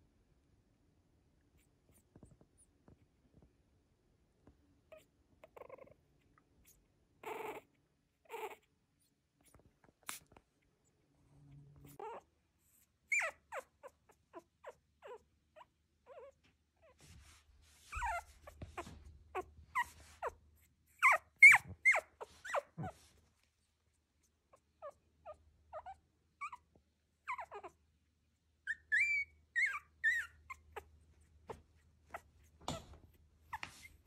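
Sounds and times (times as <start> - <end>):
puppy whimpering: 4.9 - 6.0, 6.6 - 8.7, 11.8 - 17.2, 17.8 - 23.2, 24.5 - 27.8, 28.6 - 30.9.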